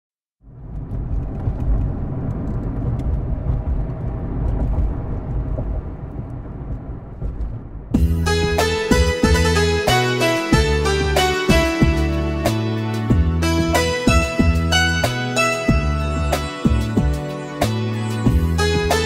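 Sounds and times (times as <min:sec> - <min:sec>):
car road and engine rumble: 0:00.4 - 0:12.0
music: 0:07.9 - 0:19.0.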